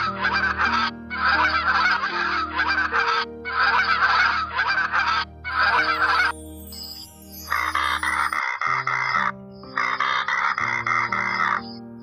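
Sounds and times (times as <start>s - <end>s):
goose honking: 0.0s - 5.9s.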